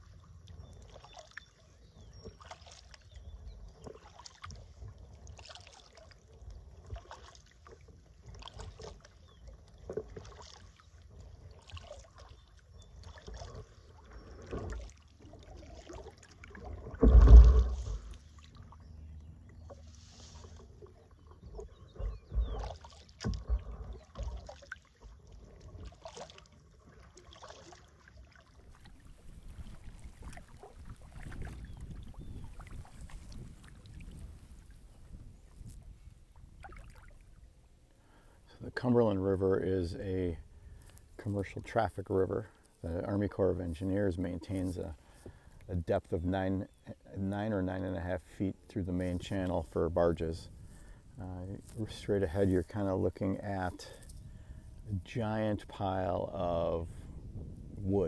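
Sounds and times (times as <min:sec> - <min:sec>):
paddle strokes through water: 0:00.0 - 0:58.0
water splashing and dripping: 0:09.7 - 0:13.7, 0:21.5 - 0:34.7, 0:36.5 - 0:37.4
loud thump: 0:17.0 - 0:18.1.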